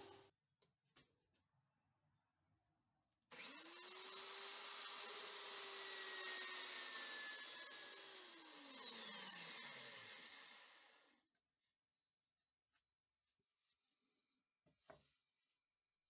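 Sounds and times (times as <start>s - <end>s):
electric motor whine: 3.4s - 10.8s.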